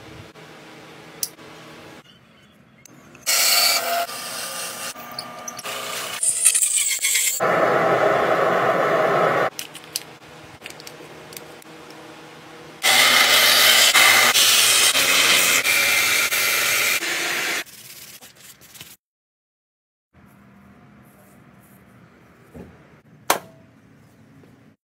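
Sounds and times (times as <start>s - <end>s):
loud rush of noise: 7.4s - 9.5s
belt sander grinding wood: 12.8s - 17.3s.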